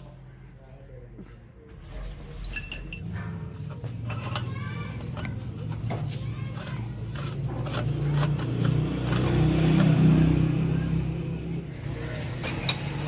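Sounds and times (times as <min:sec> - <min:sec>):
vehicle engine passing by: 0:03.0 - 0:13.0.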